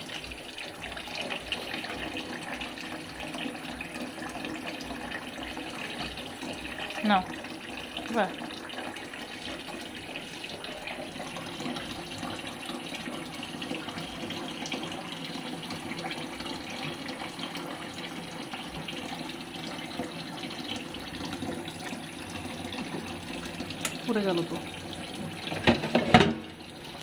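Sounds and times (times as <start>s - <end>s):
tap running into pot: 19.9s - 24.1s, 25.0s - 27.0s.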